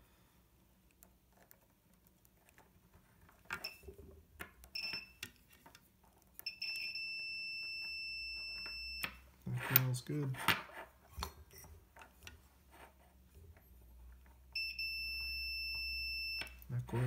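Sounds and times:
multimeter beeping: 0:04.7 - 0:05.3, 0:06.4 - 0:09.2, 0:14.5 - 0:16.7.

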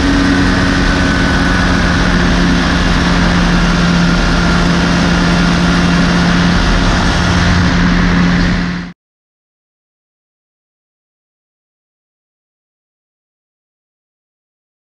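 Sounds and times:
microlight engine running: 0:00.0 - 0:09.0
rush of air noise: 0:00.0 - 0:09.0.

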